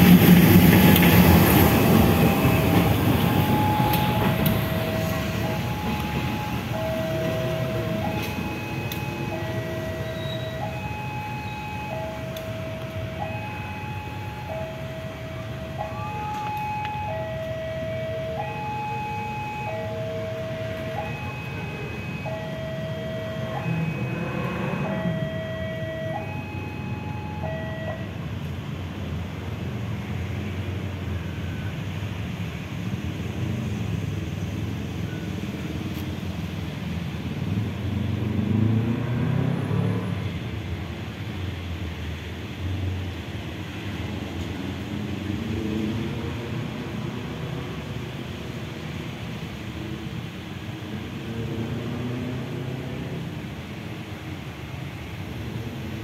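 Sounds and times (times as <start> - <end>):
locomotive engine rumble: 0.0 - 38.0
two-tone level crossing alarm: 1.6 - 28.1.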